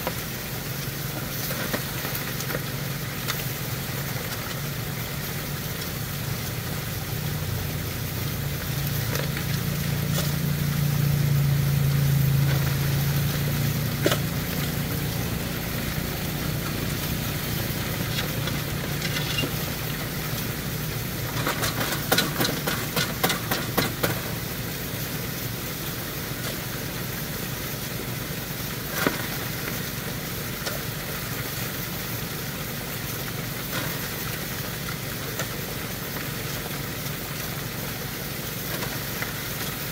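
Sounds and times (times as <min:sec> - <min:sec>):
small gasoline engine running: 0:00.0 - 0:39.9
gravel clattering into metal hopper: 0:14.0 - 0:20.2, 0:21.2 - 0:24.4.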